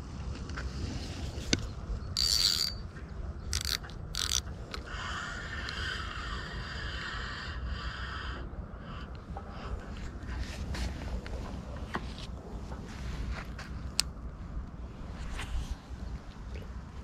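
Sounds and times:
fishing reel whirring: 0:02.1 - 0:02.9, 0:03.5 - 0:04.9.

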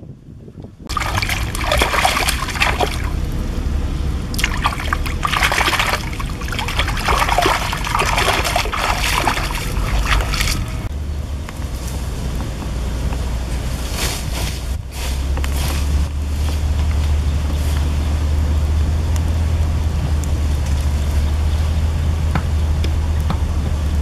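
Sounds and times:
water splashing in stream: 0:00.9 - 0:03.6, 0:04.2 - 0:10.9.

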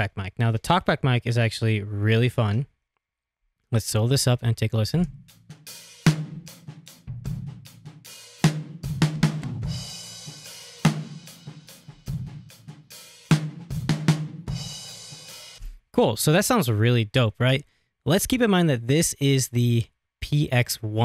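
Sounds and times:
drum kit playing: 0:05.0 - 0:15.8.

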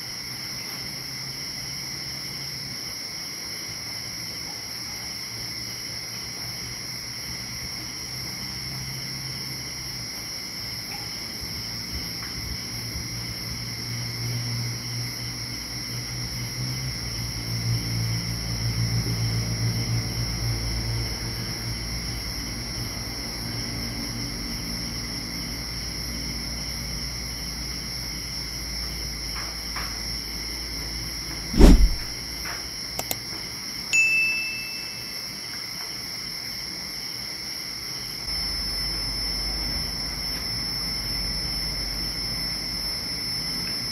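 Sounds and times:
crickets chirring: 0:00.0 - 0:31.2, 0:32.7 - 0:43.9
loud thump: 0:31.6 - 0:32.1
low motor hum: 0:31.6 - 0:32.1.

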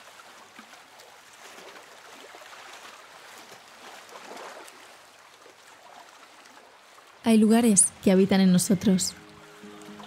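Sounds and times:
water lapping against stone edge: 0:00.0 - 0:07.2.

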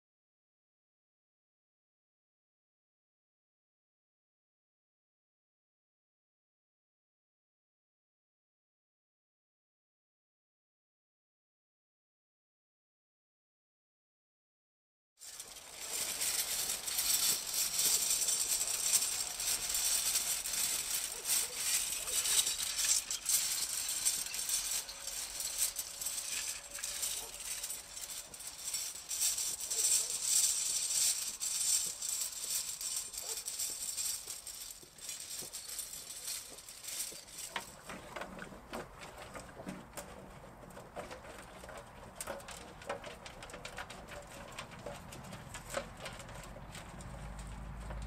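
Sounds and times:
harrow scraping over dry soil: 0:15.2 - 0:48.0.

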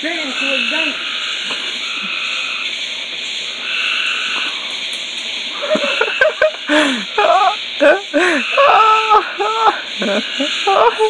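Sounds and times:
frogs chorus: 0:00.0 - 0:11.0
frog call held: 0:03.6 - 0:04.7, 0:05.5 - 0:11.0.

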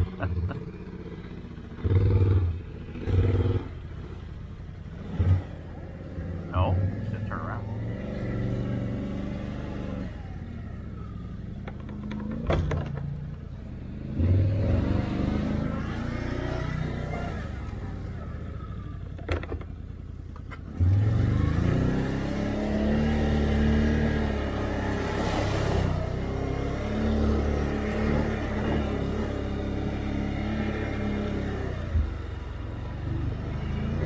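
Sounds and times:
atv engine revving: 0:00.0 - 0:34.0.

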